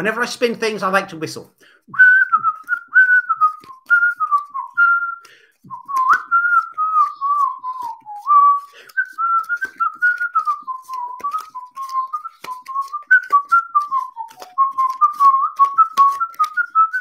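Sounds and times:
man whistling a tune: 1.9 - 17.0.

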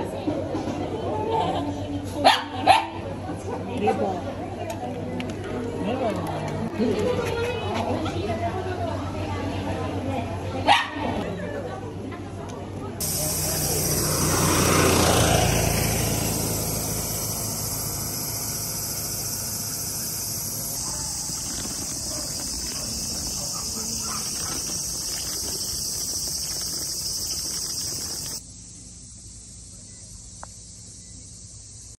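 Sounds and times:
insects chorus: 13.0 - 31.9.

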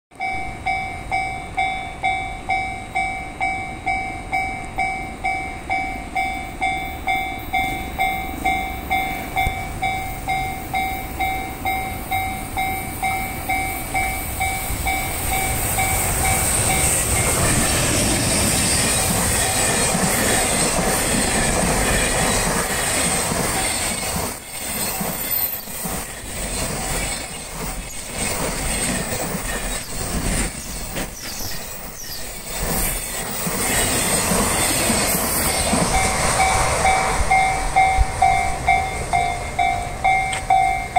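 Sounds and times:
level-crossing alarm bell: 0.1 - 23.1, 34.8 - 40.9
freight train rushing past: 0.1 - 40.9.

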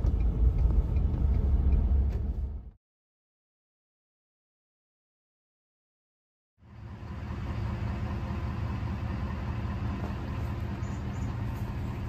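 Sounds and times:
combine harvester engine rumbling: 0.0 - 2.8, 6.6 - 12.0.

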